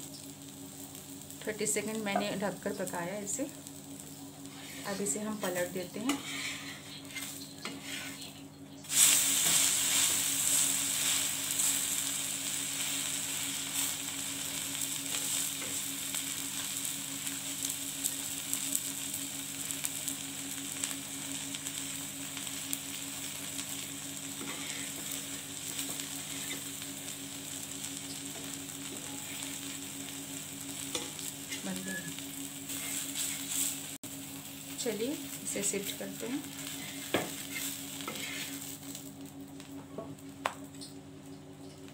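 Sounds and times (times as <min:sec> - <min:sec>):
batter sizzling on hot pan: 0:00.0 - 0:40.8.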